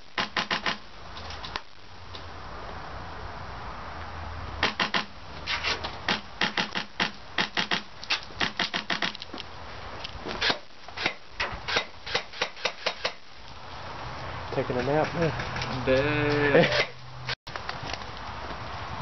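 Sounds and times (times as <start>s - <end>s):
airsoft rifle shots: 0.1s - 0.8s, 4.6s - 5.1s, 6.1s - 9.2s, 10.4s - 13.2s.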